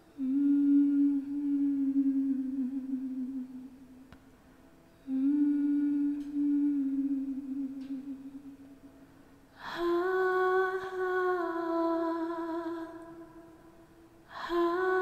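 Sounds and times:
woman humming: 0:00.1 - 0:03.9, 0:05.0 - 0:08.6, 0:14.3 - 0:15.0.

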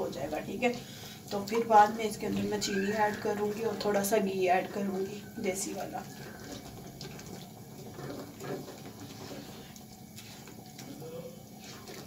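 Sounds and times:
wet sloshing in a pan: 0:00.0 - 0:12.0
spoon scraping a pan: 0:04.8 - 0:12.0.

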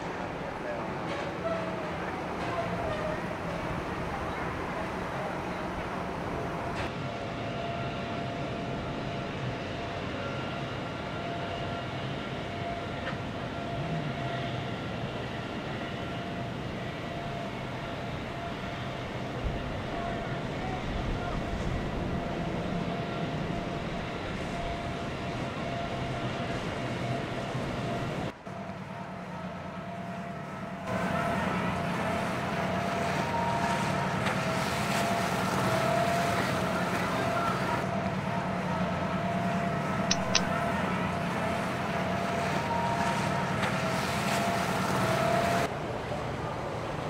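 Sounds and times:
motorboat engines whining: 0:00.0 - 0:47.0
quick ticks: 0:40.1 - 0:40.5.

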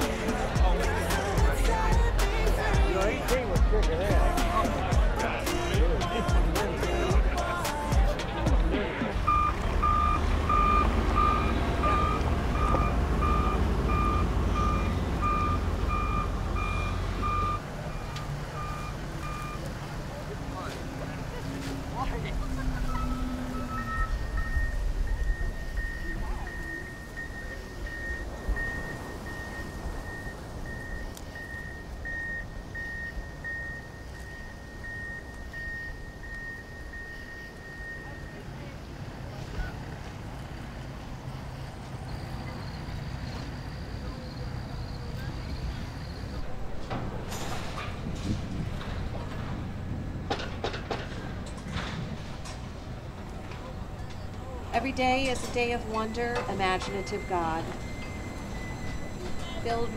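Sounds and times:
low engine rumble: 0:00.0 - 0:59.9
back-up alarm beeping: 0:09.3 - 0:19.7, 0:22.6 - 0:38.6, 0:54.0 - 0:59.9.

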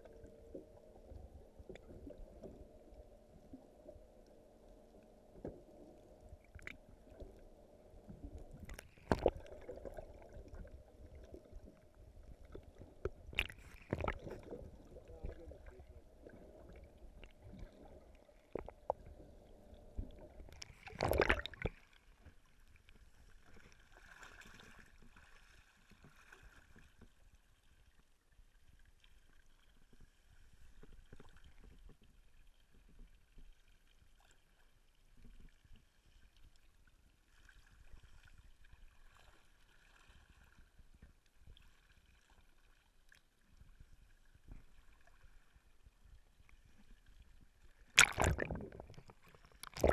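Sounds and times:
water sloshing against boat hull: 0:20.1 - 0:22.5, 0:46.2 - 0:49.9.

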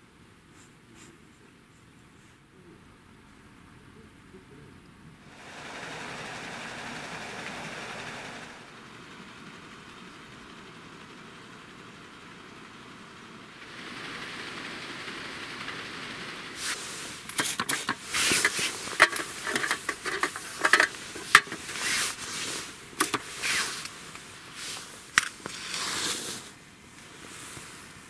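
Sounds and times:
gear rustling and clicking: 0:16.6 - 0:26.2
match striking and flaring: 0:16.6 - 0:27.8.

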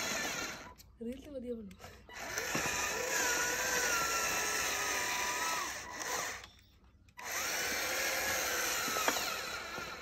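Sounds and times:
toy motor whining: 0:00.0 - 0:10.0.

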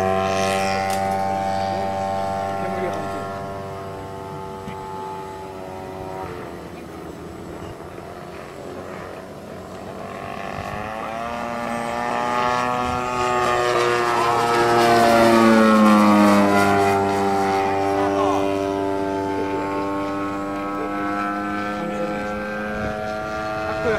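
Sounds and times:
model airplane engine droning: 0:00.0 - 0:23.9.

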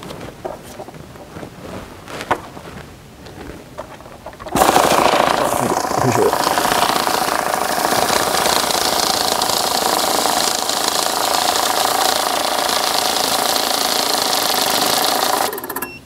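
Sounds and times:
machine clicks: 0:04.3 - 0:15.9
banknote counting machine whirring: 0:04.5 - 0:16.0.

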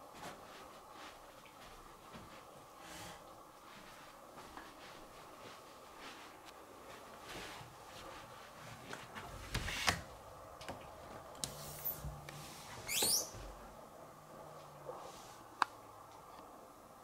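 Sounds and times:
door squeak: 0:12.9 - 0:13.4.

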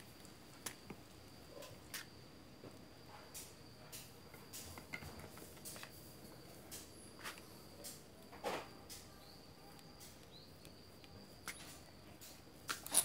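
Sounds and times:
small metal parts clicking: 0:11.4 - 0:13.0.

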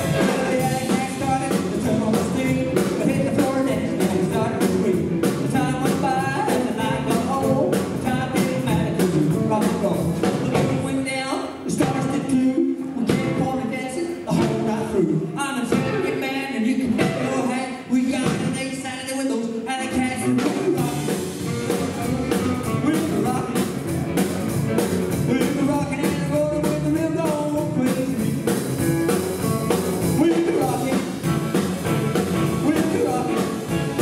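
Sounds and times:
electric guitars: 0:00.0 - 0:10.8, 0:19.9 - 0:34.0
upright double bass: 0:00.0 - 0:18.6, 0:19.8 - 0:34.0
drum kit beat: 0:00.0 - 0:18.9, 0:19.8 - 0:34.0
man singing: 0:00.0 - 0:23.8, 0:25.1 - 0:34.0.

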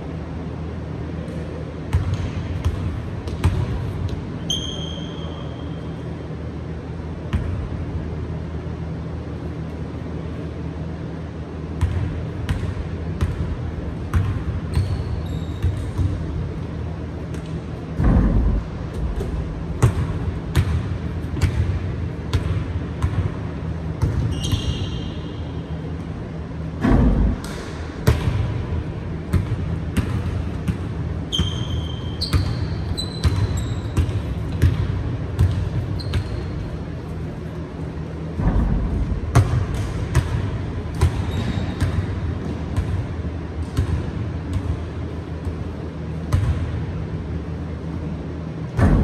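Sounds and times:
sneaker squeaks: 0:01.9 - 0:06.2, 0:14.1 - 0:16.4, 0:24.0 - 0:25.9, 0:31.2 - 0:34.8, 0:35.4 - 0:37.1, 0:40.9 - 0:42.6.

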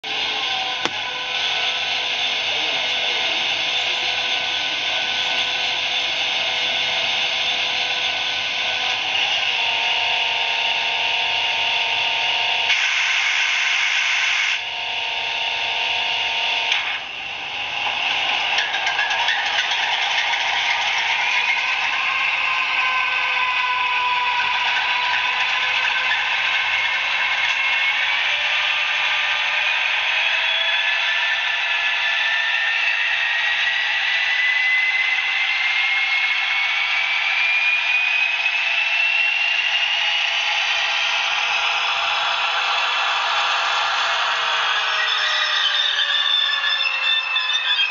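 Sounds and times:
diesel engine sound from small speaker: 0:00.0 - 0:12.3
model locomotive engine sound: 0:00.0 - 0:47.9
thin rising whine: 0:00.1 - 0:47.9.

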